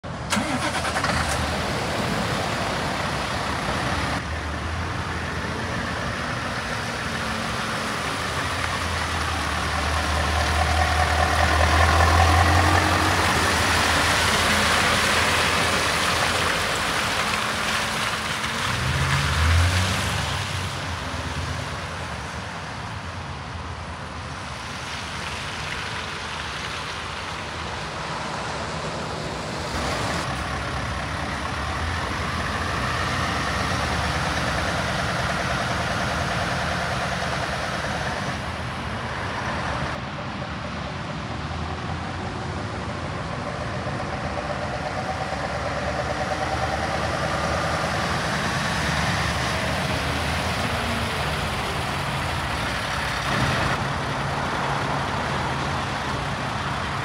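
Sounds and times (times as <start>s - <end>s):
diesel engine idling: 0.1s - 18.3s, 27.1s - 57.0s.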